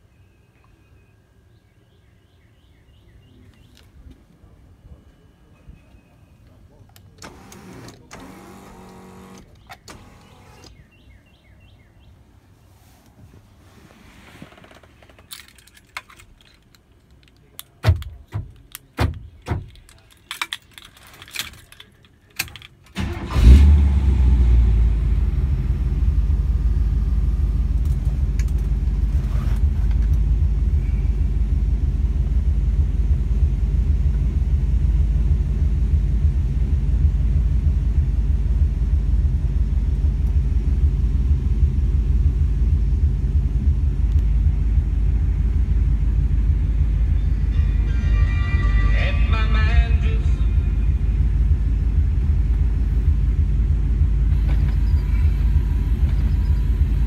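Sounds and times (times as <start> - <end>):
engine starting and idling: 7.1 - 10.8, 22.4 - 33.5, 50.0 - 57.0
car keys jangling: 15.2 - 23.0.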